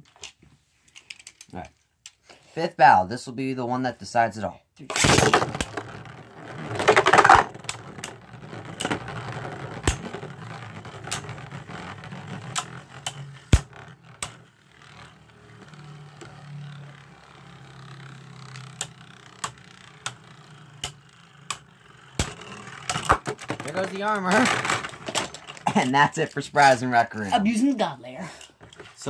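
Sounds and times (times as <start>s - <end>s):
spinning tops whirring: 5.0s - 25.6s
spinning tops clicking together: 17.5s - 24.4s.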